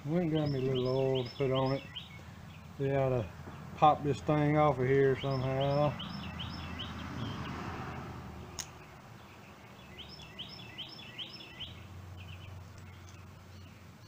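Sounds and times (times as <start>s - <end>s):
steady background hiss: 0.0s - 6.7s
songbird chirping: 0.0s - 14.0s
sharp click: 8.6s - 8.8s.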